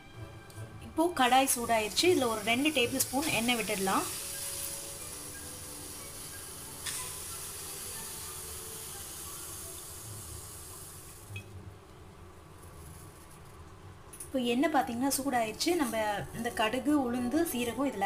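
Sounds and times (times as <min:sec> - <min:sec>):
oil hissing in a hot pan: 0:01.2 - 0:11.4.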